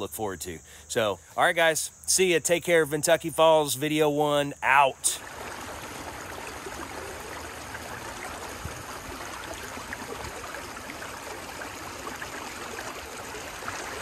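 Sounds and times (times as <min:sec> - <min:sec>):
creek flowing over rocks: 0:05.0 - 0:14.0.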